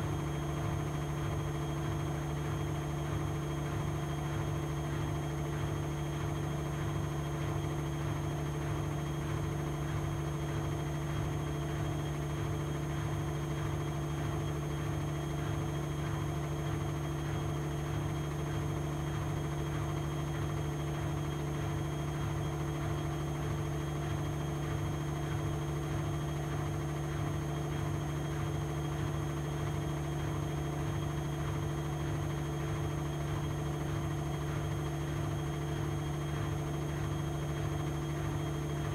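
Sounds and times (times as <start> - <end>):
washing machine spinning: 0.0 - 38.9.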